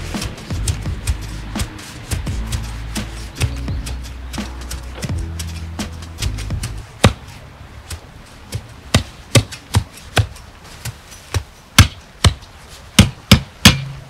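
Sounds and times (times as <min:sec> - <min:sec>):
sharp short knocks: 0:13.0 - 0:14.0.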